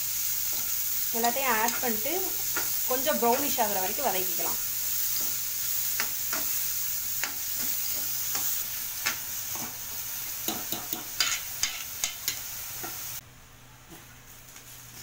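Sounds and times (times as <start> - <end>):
vegetables sizzling in hot oil: 0.0 - 13.2, 14.3 - 15.0
metal spoon scraping a pan: 10.5 - 13.0.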